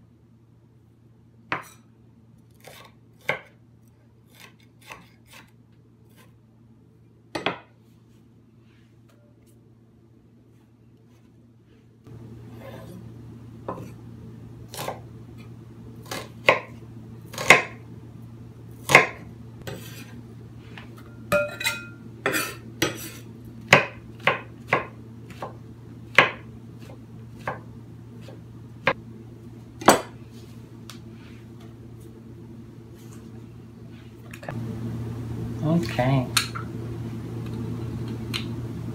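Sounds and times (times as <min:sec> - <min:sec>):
steady low hum: 0:00.0 - 0:38.9
knife chopping on cutting board: 0:01.5 - 0:01.8, 0:02.6 - 0:03.6, 0:04.3 - 0:06.3, 0:07.3 - 0:07.7, 0:14.7 - 0:15.0, 0:16.0 - 0:17.8, 0:18.8 - 0:20.1, 0:22.2 - 0:29.0.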